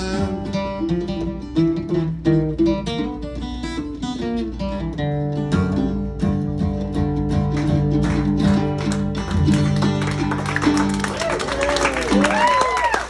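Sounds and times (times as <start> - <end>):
acoustic guitar playing: 0.0 - 12.7.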